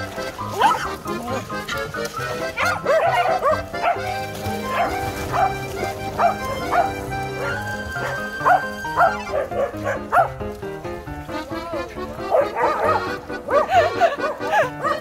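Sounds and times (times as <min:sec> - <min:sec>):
background music with held notes: 0:00.0 - 0:15.0
dogs barking: 0:00.1 - 0:15.0.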